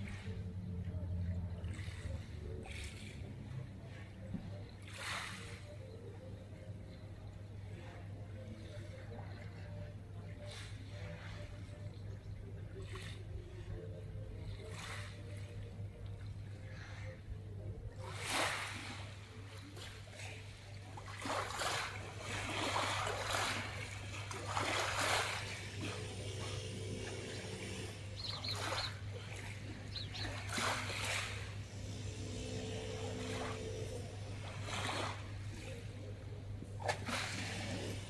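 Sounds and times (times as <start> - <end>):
low hum: 0.0 - 38.0
waves lapping on pebble shore: 4.9 - 5.7, 18.0 - 35.9, 36.9 - 38.0.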